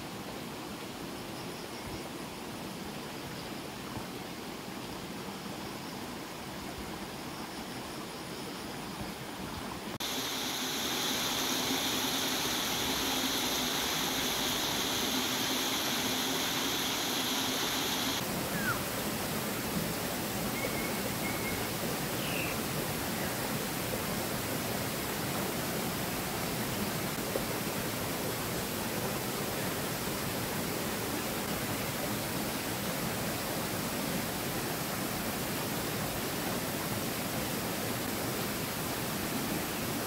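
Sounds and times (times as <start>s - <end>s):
stream flowing over rocks: 9.5s - 40.0s
high buzz: 10.0s - 18.2s.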